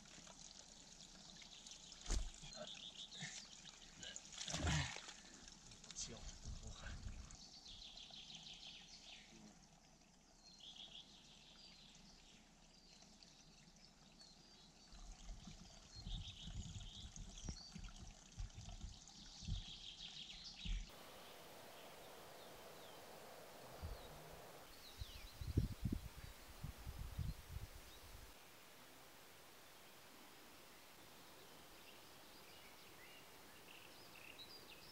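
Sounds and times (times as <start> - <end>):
water trickling into pool: 0.0 - 34.9
small birds chirping: 1.2 - 4.2, 10.3 - 34.9
low rumbles: 20.9 - 34.9.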